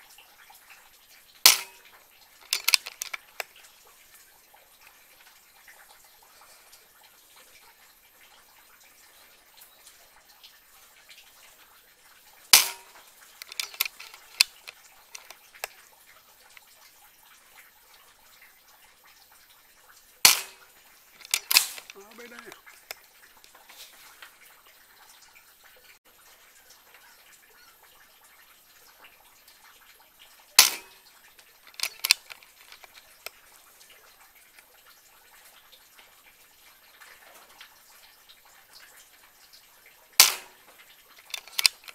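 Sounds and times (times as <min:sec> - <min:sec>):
small sharp clicks and taps: 0:01.4 - 0:03.7, 0:12.5 - 0:15.8, 0:20.2 - 0:24.3, 0:30.6 - 0:33.4, 0:40.2 - 0:41.9
air rifle shot: 0:20.3 - 0:20.6, 0:40.2 - 0:40.6.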